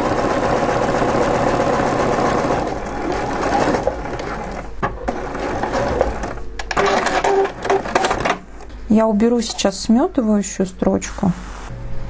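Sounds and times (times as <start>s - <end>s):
sewing machine stitching: 0.0s - 8.4s.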